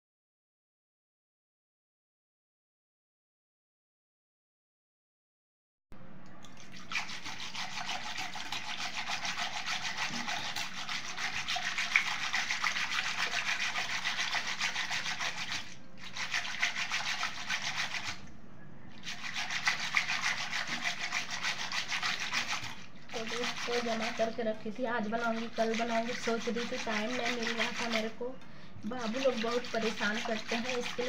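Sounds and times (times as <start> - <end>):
whisk swishing in steel bowl: 6.8 - 18.3, 18.9 - 31.0.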